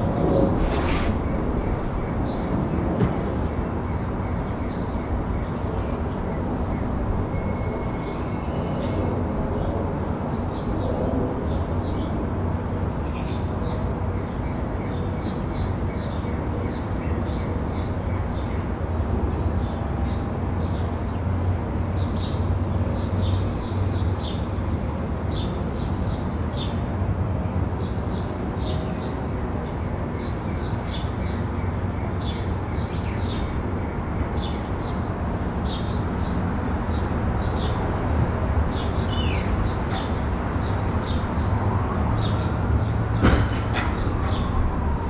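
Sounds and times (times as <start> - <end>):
faint sliding whine: 0.0 - 3.5
low background rumble: 0.0 - 7.9.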